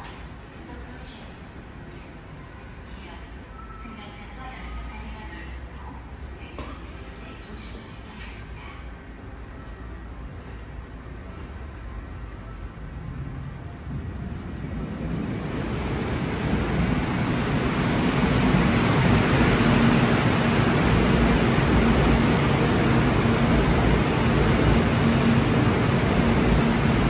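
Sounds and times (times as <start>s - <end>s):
electric train pulling in: 9.1s - 27.0s.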